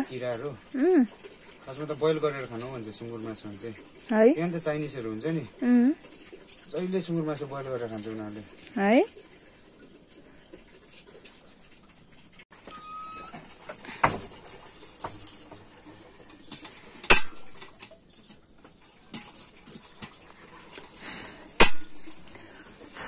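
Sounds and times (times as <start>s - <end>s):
short high chirp: 12.7s - 13.4s.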